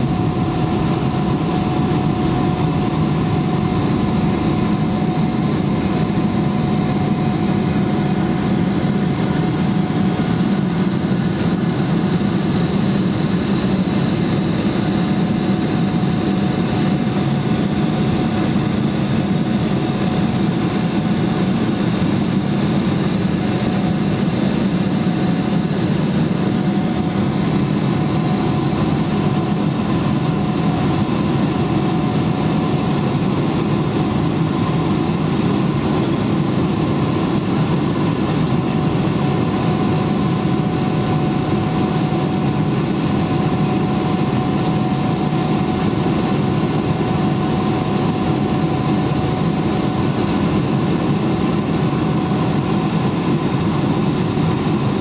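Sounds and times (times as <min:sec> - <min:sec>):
faint steady whine: 0:00.0 - 0:17.0
jet engine drone in cabin: 0:00.0 - 0:55.0.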